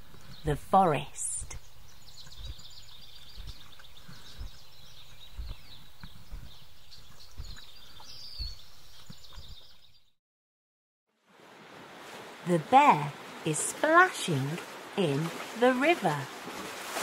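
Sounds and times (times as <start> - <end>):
small birds chirping: 0.0 - 10.2
soft low thuds: 1.4 - 9.6.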